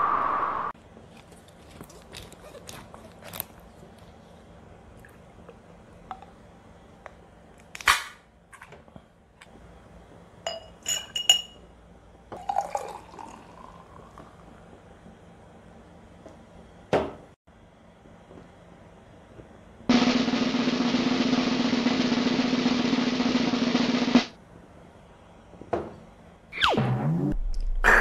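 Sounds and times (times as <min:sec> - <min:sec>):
glass clinks: 0:10.5 - 0:11.6
beer pouring into glass: 0:12.4 - 0:14.5.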